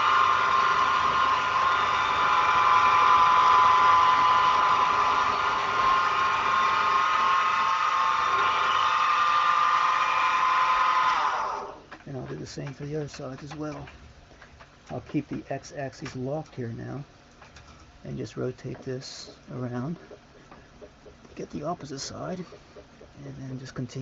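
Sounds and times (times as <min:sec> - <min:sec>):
milling machine spindle whining: 0:00.0 - 0:11.8.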